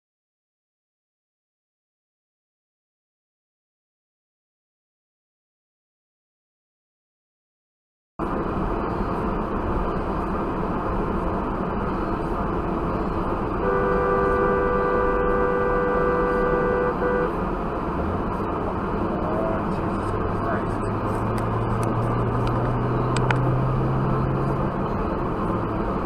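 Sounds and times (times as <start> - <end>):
road and tyre noise in car: 8.2 - 26.0
two-note car horn: 13.6 - 17.4.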